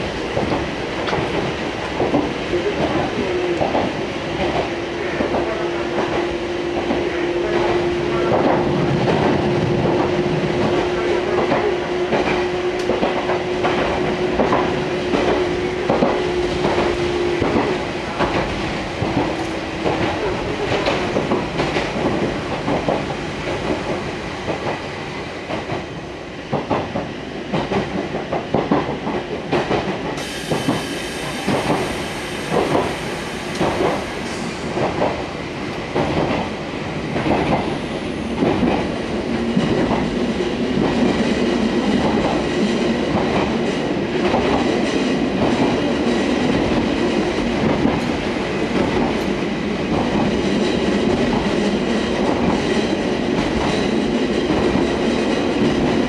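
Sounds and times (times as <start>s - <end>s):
train wheels clacking over rail joints: 0.3s - 24.8s, 26.5s - 35.3s
high hiss: 30.2s - 34.7s.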